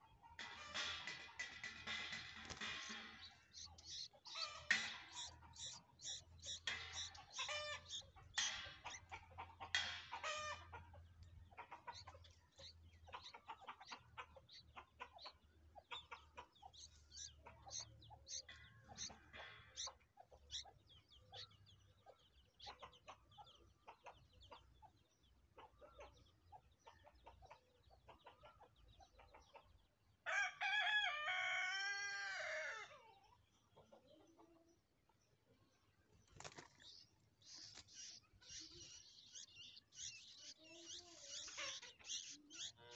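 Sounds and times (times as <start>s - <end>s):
nestlings chirping: 0.3s - 25.0s, 36.3s - 42.9s.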